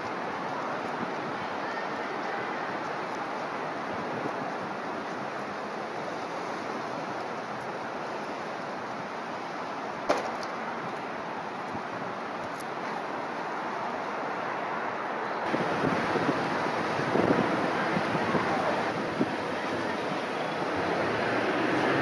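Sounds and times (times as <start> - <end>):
wind: 0.0 - 22.0.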